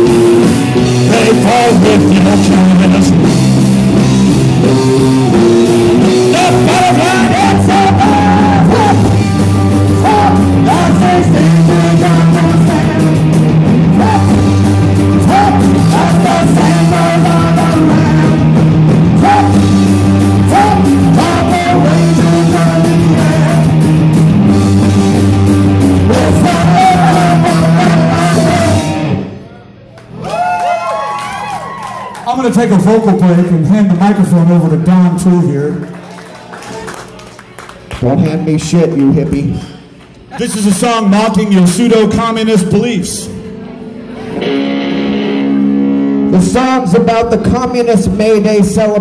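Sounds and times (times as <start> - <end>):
man singing: 0.0 - 3.3, 6.0 - 24.1, 26.0 - 29.1, 46.3 - 49.0
drums: 0.0 - 29.4, 44.2 - 49.0
electric guitars: 0.0 - 35.2, 41.6 - 49.0
bass guitar: 0.0 - 36.0, 38.0 - 49.0.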